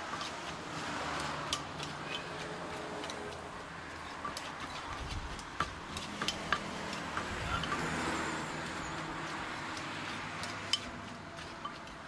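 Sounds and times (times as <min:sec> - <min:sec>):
vehicle passing: 0:00.0 - 0:12.0
pestle knocking in mortar: 0:00.1 - 0:07.9.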